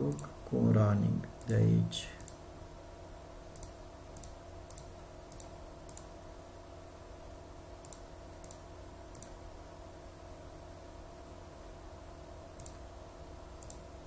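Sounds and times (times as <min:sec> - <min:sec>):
faint steady hum: 0:00.0 - 0:14.0
computer mouse clicking: 0:00.1 - 0:00.3, 0:02.2 - 0:02.4, 0:03.5 - 0:06.1, 0:07.8 - 0:09.4, 0:12.6 - 0:12.8, 0:13.6 - 0:13.8.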